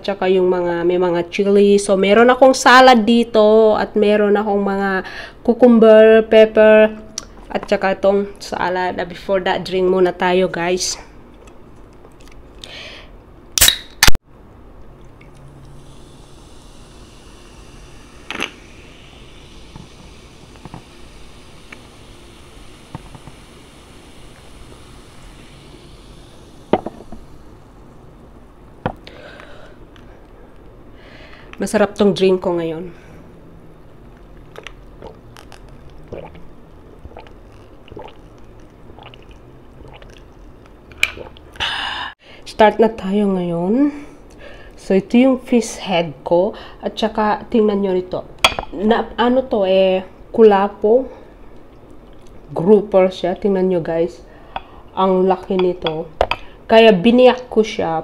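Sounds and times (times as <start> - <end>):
drink can ring-pull cracks: 13.6 - 14.2
faint fizz: 15.6 - 27.6, 34.5 - 41.5
person gulping and swallowing: 34.4 - 41.6.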